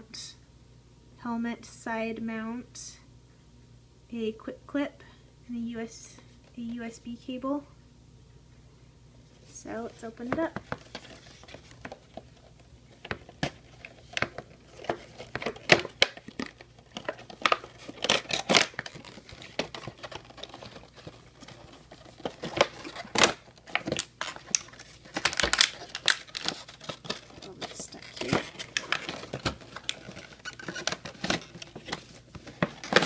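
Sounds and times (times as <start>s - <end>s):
plastic tray crinkling: 10.2s - 33.0s
cardboard box opening: 13.8s - 33.0s.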